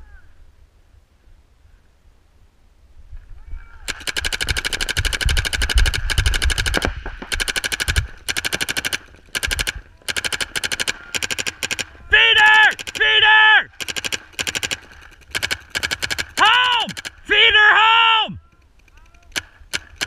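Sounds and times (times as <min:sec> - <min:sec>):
paintball marker firing: 0:03.9 - 0:12.0, 0:12.6 - 0:17.3, 0:18.9 - 0:20.0.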